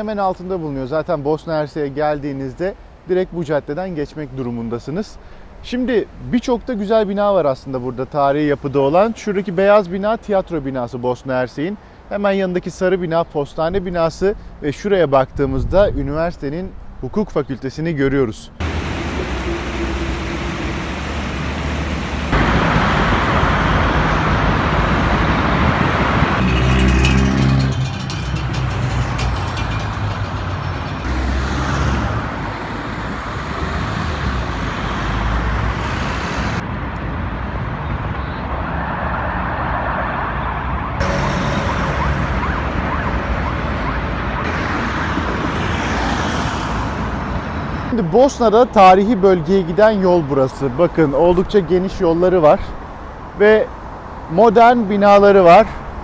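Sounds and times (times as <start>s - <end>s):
road vehicles passing: 18.0s - 56.0s.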